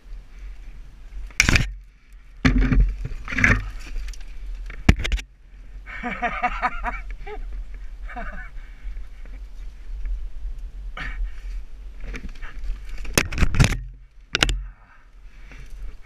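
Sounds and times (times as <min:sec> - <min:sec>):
camera knocking and scraping in grass: 0:01.3 - 0:05.3, 0:11.9 - 0:14.8.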